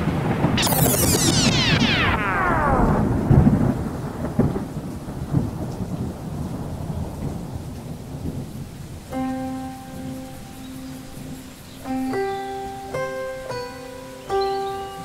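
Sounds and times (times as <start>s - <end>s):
rain-like hiss: 0.0s - 15.0s
deep booms: 0.6s - 4.7s.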